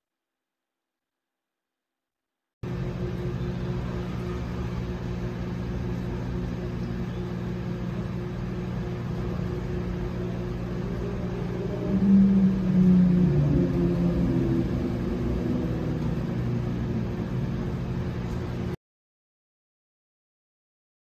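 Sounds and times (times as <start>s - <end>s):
microwave oven humming: 2.6s - 18.8s
wavering tone: 9.7s - 18.7s.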